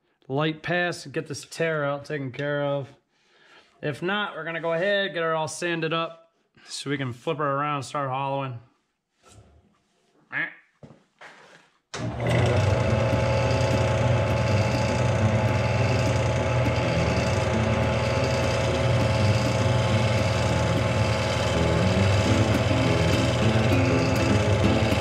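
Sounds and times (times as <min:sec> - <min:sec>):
gouge cutting wood: 0:12.0 - 0:25.0
wood lathe motor hum: 0:12.0 - 0:25.0.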